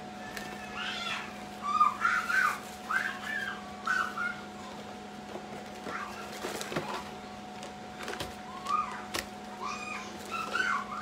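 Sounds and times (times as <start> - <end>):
steady hum: 0.0 - 11.0
plastic bag rustling: 1.4 - 7.2.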